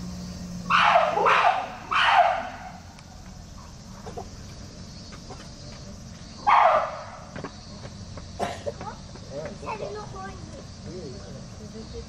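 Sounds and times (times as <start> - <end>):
chimpanzee barking call: 0.6 - 4.4, 6.4 - 7.3.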